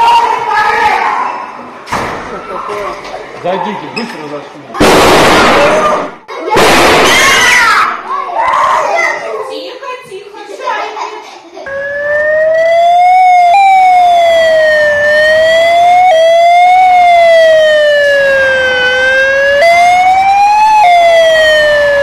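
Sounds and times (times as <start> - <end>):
emergency vehicle siren: 11.7 - 22.0.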